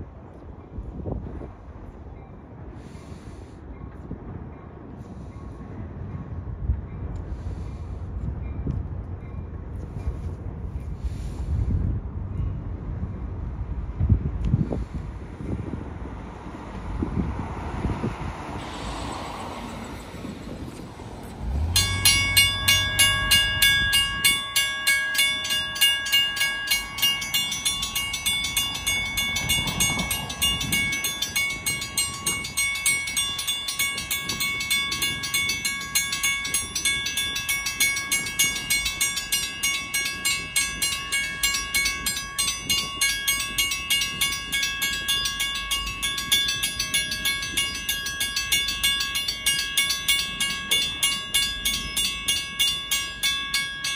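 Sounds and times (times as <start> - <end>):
railroad crossing bell ringing: 0.1 - 53.9.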